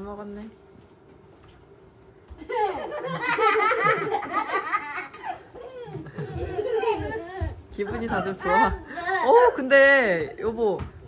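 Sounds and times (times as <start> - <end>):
young children laughing: 2.3 - 9.6.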